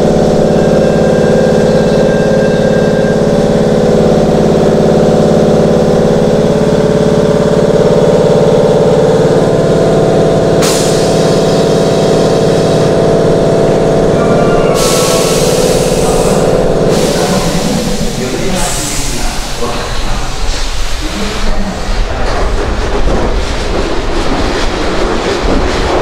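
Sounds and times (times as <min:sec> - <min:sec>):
train air compressor chugging: 0:00.0 - 0:26.0
hiss of released air: 0:10.6 - 0:12.9, 0:14.8 - 0:19.6.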